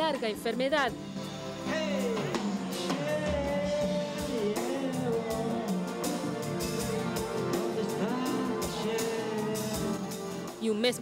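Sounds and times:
jazz band playing: 0.0 - 11.0
percussion: 0.0 - 11.0
man singing into a microphone: 1.7 - 6.4, 7.5 - 10.3.

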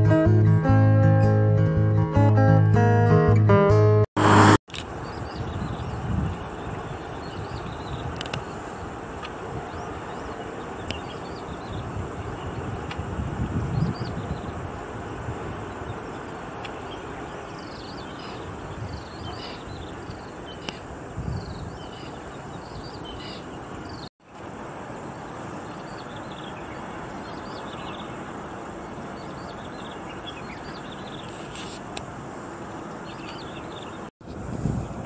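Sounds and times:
wind rumble on microphone: 4.2 - 28.2, 33.4 - 35.0
outdoor background hiss: 4.8 - 35.0
small birds chirping: 4.9 - 24.4, 25.2 - 31.9, 32.8 - 34.1.

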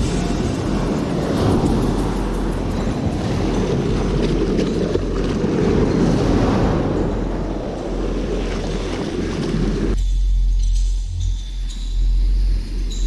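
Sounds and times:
wind noise on microphone: 0.0 - 13.0
surf washing around legs: 0.1 - 10.0.

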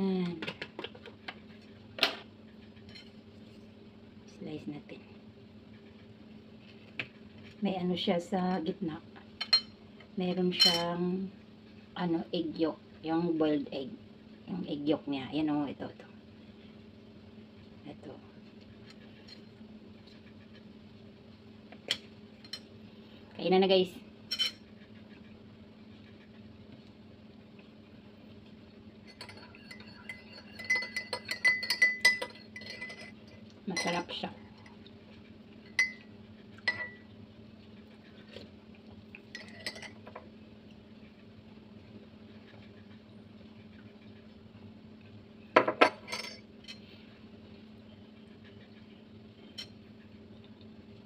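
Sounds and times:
metal spoon clinking in a mug: 29.0 - 33.2, 35.7 - 37.0, 39.3 - 40.0.

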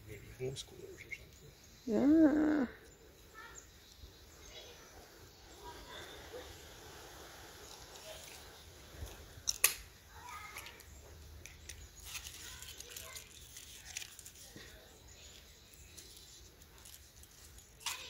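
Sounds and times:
rustling of vinyl tarp: 12.0 - 18.0.

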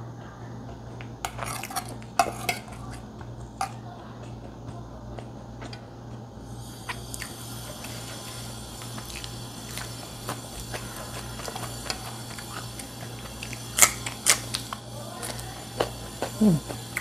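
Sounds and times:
steady low hum: 0.0 - 17.0
chewing with small clicks: 0.7 - 17.0
crunches of biting chili: 0.9 - 17.0.

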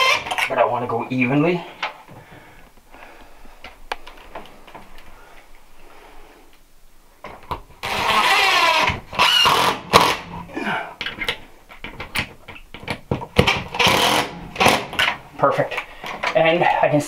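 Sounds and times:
cordless drill driving screws: 7.8 - 10.2, 13.7 - 15.1
small clicks and knocks: 11.0 - 13.6.

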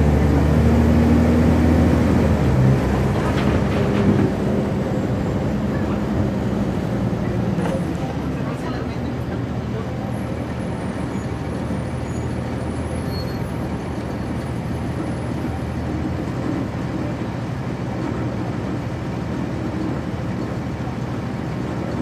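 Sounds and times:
bus diesel engine running: 0.0 - 22.0.

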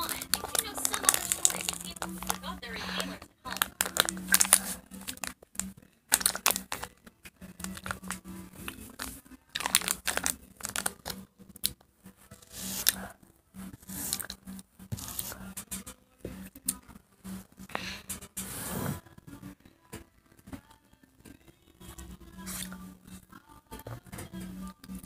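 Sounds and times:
wrapper crumpling and tearing: 0.0 - 6.9, 7.6 - 8.2, 9.0 - 11.2.

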